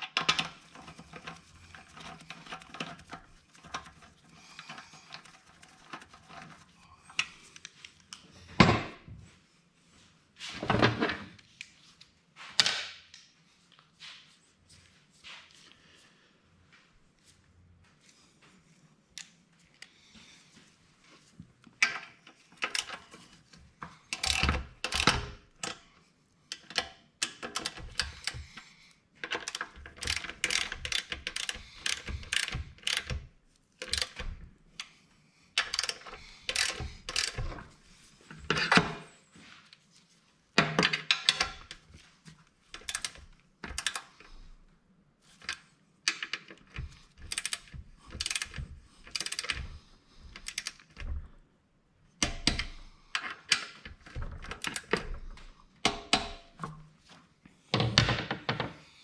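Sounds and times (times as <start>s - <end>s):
tool and parts knocking: 55.8s - 56.8s.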